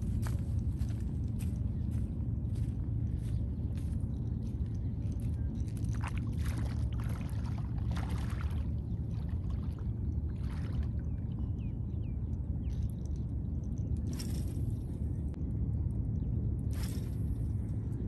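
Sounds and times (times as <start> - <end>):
low rumble: 0.0 - 18.0
footsteps wading in seawater: 3.2 - 11.4.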